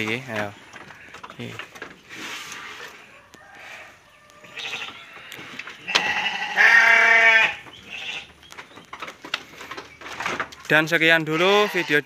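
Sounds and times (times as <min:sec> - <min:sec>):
sheep bleating: 0:04.4 - 0:05.1, 0:05.8 - 0:08.3, 0:11.2 - 0:12.0.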